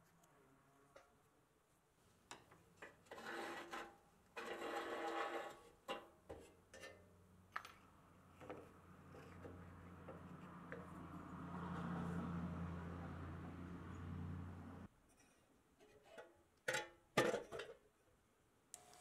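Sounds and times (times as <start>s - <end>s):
steel rod scraping: 2.8s - 7.0s.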